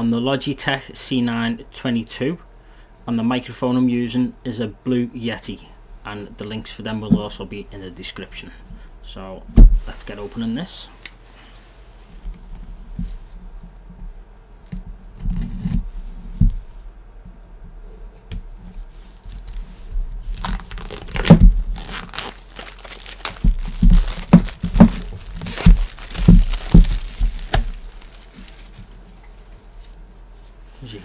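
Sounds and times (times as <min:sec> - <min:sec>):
plastic wrap crinkling and tearing: 0:19.2 - 0:30.0.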